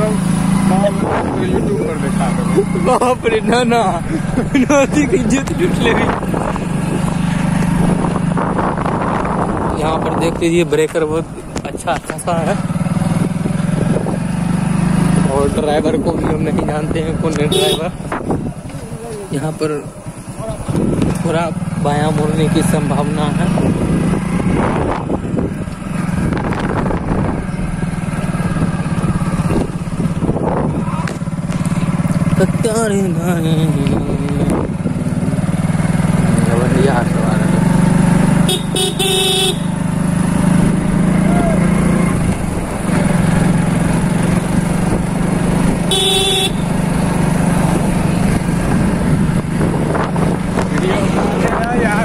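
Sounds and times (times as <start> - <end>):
motorcycle engine running: 0.0 - 52.0
motorcycle horn: 17.5 - 18.1, 38.4 - 39.8, 45.8 - 46.8.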